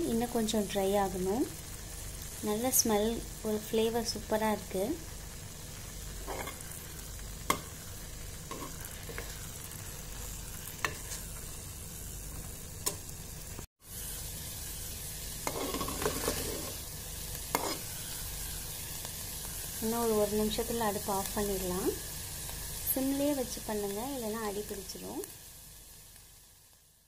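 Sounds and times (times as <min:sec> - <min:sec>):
curds sizzling in a pot: 0:00.0 - 0:27.0
spoon stirring and scraping: 0:06.2 - 0:06.6, 0:08.5 - 0:09.4, 0:15.4 - 0:16.8, 0:17.5 - 0:17.9.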